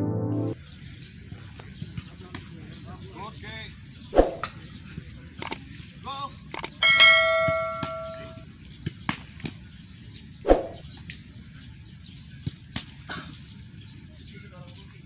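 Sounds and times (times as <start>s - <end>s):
football clanging on metal goal: 6.8s - 8.4s
balls being kicked and caught: 7.2s - 9.6s.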